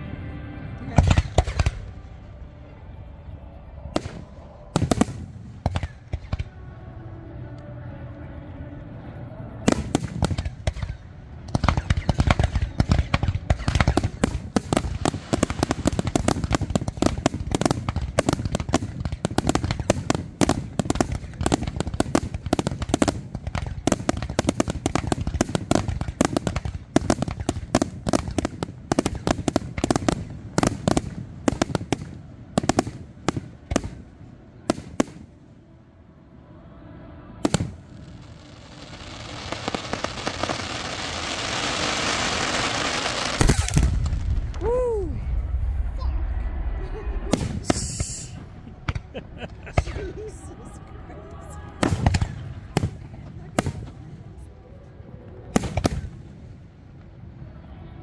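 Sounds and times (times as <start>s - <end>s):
fireworks bursting with sharp bangs: 0.9s - 2.2s, 3.9s - 6.6s, 9.6s - 35.4s, 37.4s - 50.6s, 51.4s - 54.4s, 55.4s - 57.1s
steady hiss: 9.8s - 50.9s.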